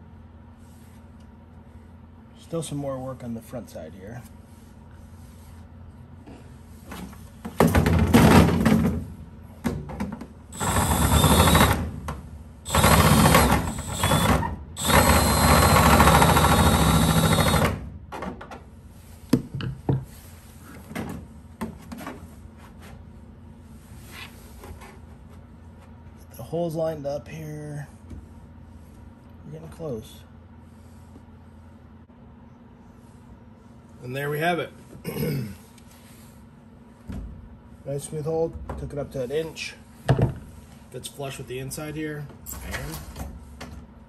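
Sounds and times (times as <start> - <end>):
cordless drill running: 10.5 - 11.9, 12.7 - 17.8.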